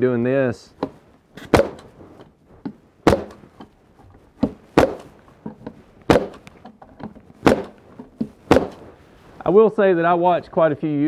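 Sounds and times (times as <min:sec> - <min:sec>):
pneumatic stapler firing: 0:01.4 - 0:01.9.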